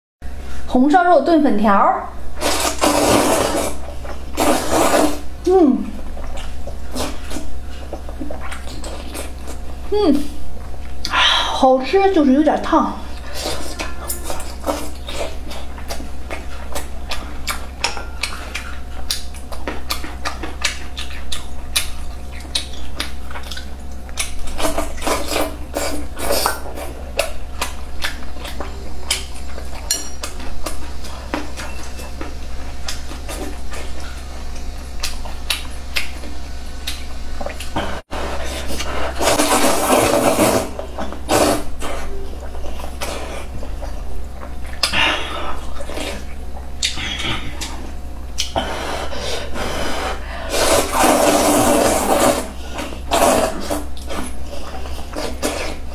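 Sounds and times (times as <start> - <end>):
slurping noodles: 2.4 - 5.3, 37.5 - 42.1, 48.4 - 55.9
wet chewing and lip-smacking: 6.0 - 9.8, 13.1 - 37.9, 38.6 - 48.6.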